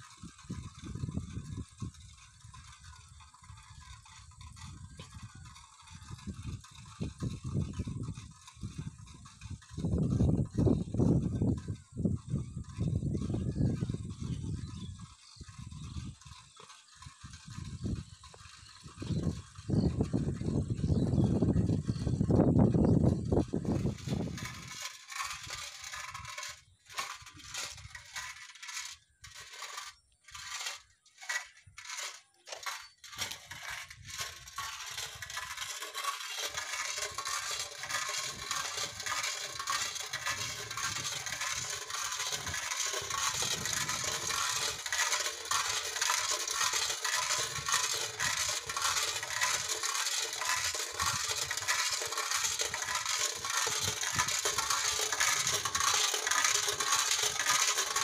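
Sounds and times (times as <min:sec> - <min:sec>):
metal can rattle clattering: 0:22.4 - 0:58.0.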